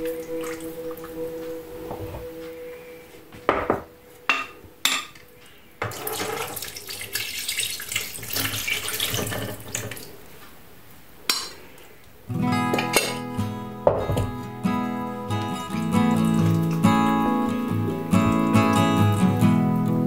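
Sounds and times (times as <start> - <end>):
metal ladle clinking on dishes: 3.5 - 5.2, 12.7 - 13.3
marinade pouring and splashing: 5.9 - 10.2, 14.1 - 19.5.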